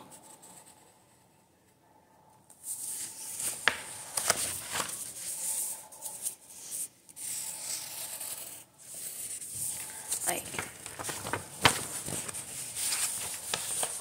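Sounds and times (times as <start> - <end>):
pencil scratching on paper: 5.2 - 10.2.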